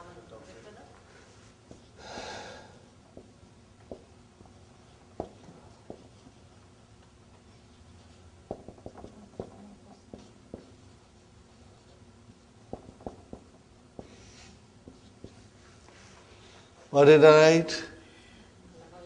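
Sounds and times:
marker pen writing on whiteboard: 4.8s - 6.6s, 7.3s - 15.8s.

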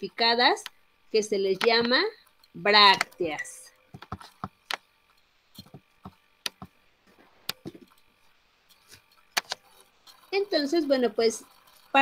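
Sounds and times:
computer mouse and key clicks: 1.6s - 6.8s, 8.7s - 10.4s.

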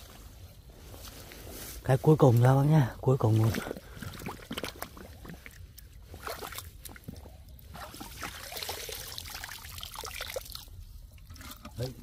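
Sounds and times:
shallow water sloshing and trickling: 2.4s - 12.0s
small knocks and splashes: 3.2s - 12.0s.

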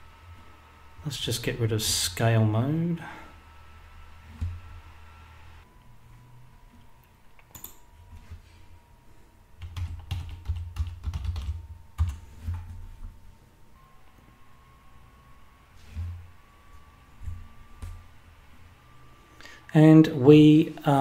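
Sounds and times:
keyboard typing: 7.0s - 8.3s, 9.6s - 12.8s.

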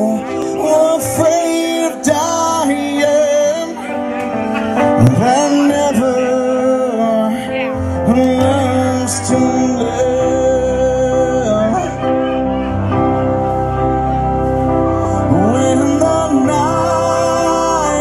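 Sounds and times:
instrumental accompaniment: 0.0s - 18.0s
man singing into microphone: 0.0s - 18.0s.

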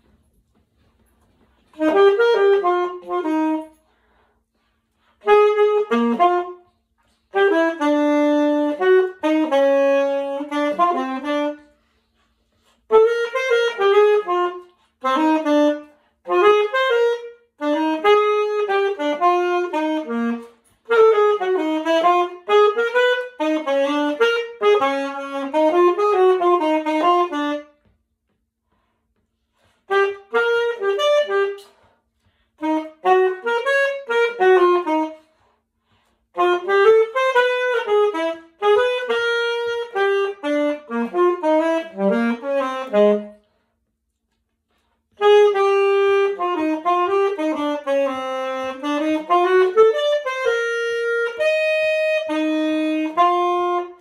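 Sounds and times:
saxophone playing jazz melody: 1.5s - 4.2s, 5.0s - 28.0s, 29.6s - 35.6s, 36.2s - 43.6s, 45.0s - 54.0s.

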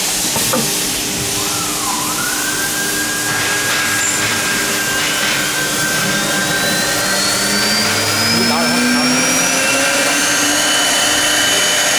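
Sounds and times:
steady rushing hiss: 0.0s - 9.1s
cnc router spindle whining: 0.0s - 11.9s
higher spindle whine: 0.0s - 11.9s.

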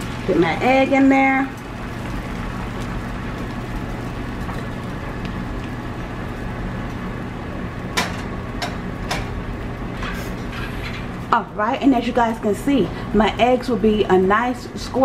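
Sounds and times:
eggs sizzling in a pan: 0.0s - 12.5s.

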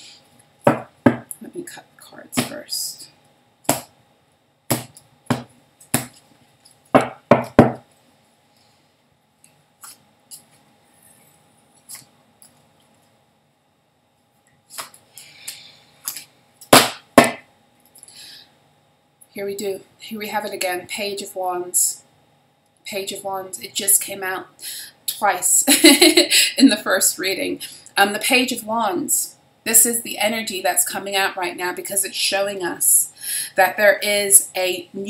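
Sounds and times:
loud knocks on table: 0.7s - 1.2s, 7.0s - 7.8s, 16.8s - 17.4s.

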